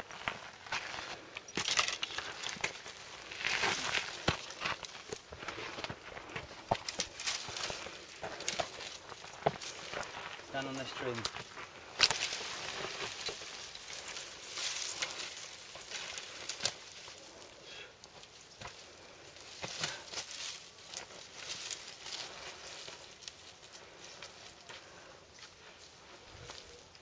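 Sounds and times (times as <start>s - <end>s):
brush and twigs crackling: 0.0s - 27.0s
footsteps scuffing dry ground: 2.2s - 17.1s.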